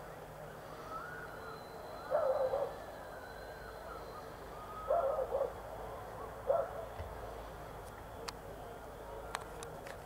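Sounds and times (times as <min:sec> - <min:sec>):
dogs barking: 0:02.1 - 0:02.8, 0:04.9 - 0:05.6, 0:06.4 - 0:06.9.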